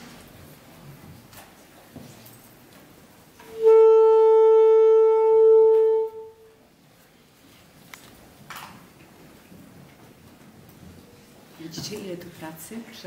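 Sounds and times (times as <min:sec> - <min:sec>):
saxophone steady note: 0:03.4 - 0:06.7.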